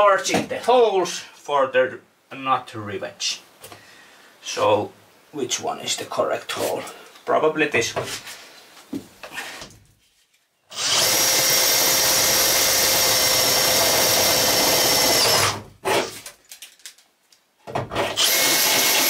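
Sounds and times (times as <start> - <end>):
cordless drill boring through metal: 10.7 - 16.1, 18.0 - 19.0.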